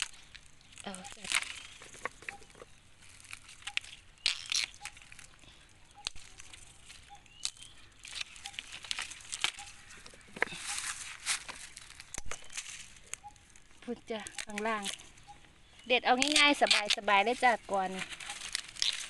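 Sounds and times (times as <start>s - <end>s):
bamboo shoots snapping: 0.0s - 15.2s, 16.0s - 19.0s
dry leaves crackling and rustling: 0.0s - 19.0s.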